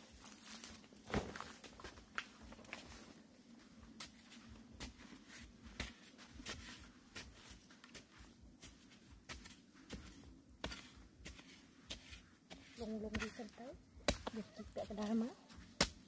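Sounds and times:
digging tool chopping into earth: 0:14.0 - 0:14.3, 0:15.7 - 0:16.0.

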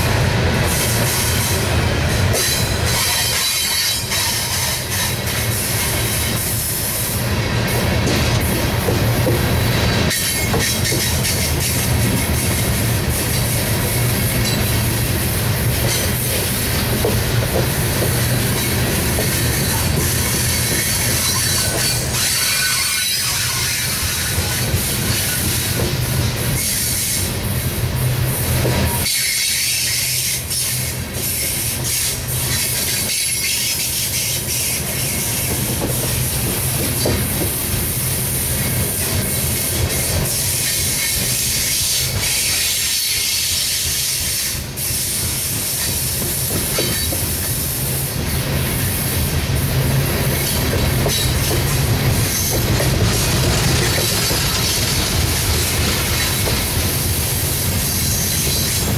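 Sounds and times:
steel wheels rumbling on rail: 0:00.0 - 0:58.9
wheels clicking over rail joints: 0:50.3 - 0:56.8.

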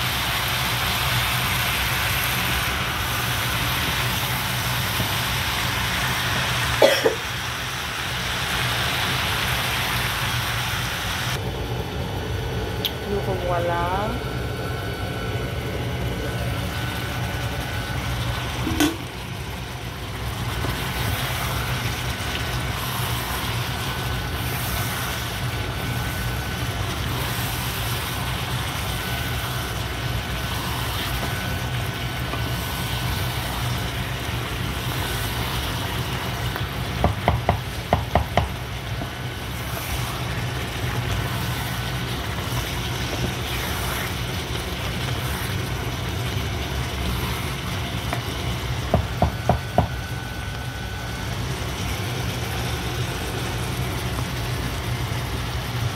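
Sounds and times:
stew simmering and sizzling: 0:00.0 - 0:55.9
steady low hum: 0:11.3 - 0:55.9.

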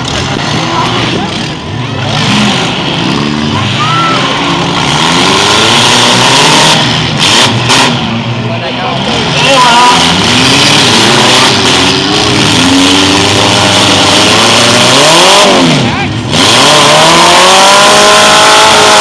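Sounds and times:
car engines revving: 0:00.0 - 0:19.0.

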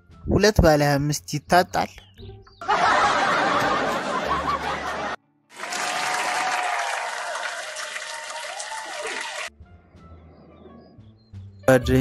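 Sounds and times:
crowd applause: 0:02.6 - 0:09.5
crowd laughter: 0:02.6 - 0:09.5.

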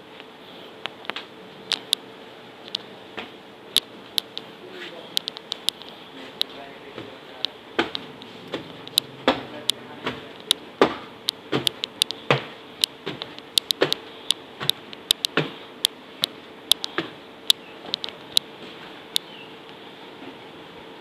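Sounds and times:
faint hum: 0:00.0 - 0:21.0
footsteps on wooden stairs: 0:06.3 - 0:07.2, 0:07.8 - 0:14.0, 0:14.6 - 0:15.6.

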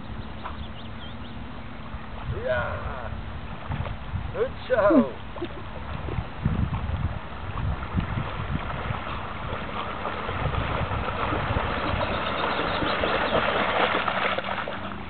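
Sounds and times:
moving water: 0:00.0 - 0:15.0
wind buffeting microphone: 0:01.9 - 0:14.2.

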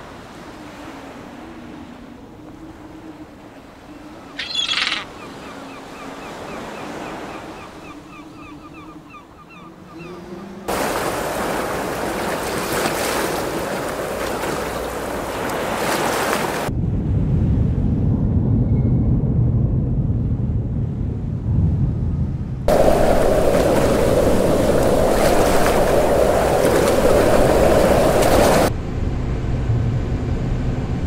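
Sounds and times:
low rumble of wind and sea: 0:00.0 - 0:31.0
wind and surf rushing: 0:00.0 - 0:31.0
faint repeated chirps: 0:04.4 - 0:05.1.

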